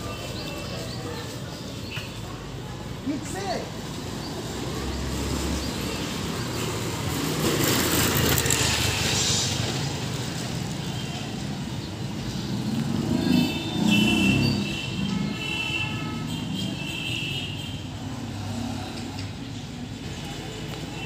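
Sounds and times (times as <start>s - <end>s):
street noise: 0.0s - 21.0s
motor scooter passing by: 4.6s - 10.7s.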